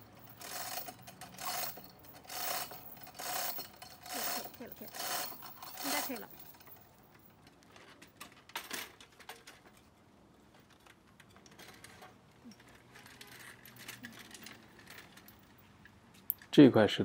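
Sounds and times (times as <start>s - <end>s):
hand truck frame clinking and rattling: 0.0s - 16.0s.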